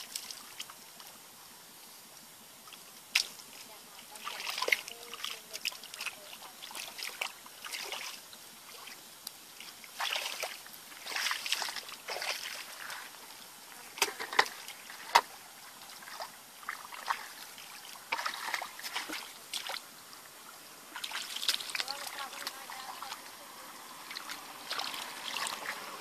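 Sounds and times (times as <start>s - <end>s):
hands splashing in muddy water: 9.9s - 13.1s, 18.1s - 19.8s, 21.0s - 22.6s, 24.1s - 25.9s.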